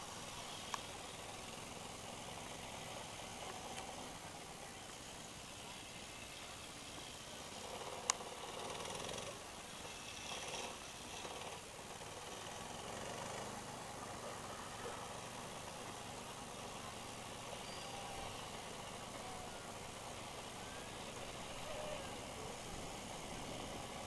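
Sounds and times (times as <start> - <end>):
distant engine humming: 0.0 - 24.0
open-air background noise: 0.0 - 24.0
faint short chirps: 17.6 - 18.4.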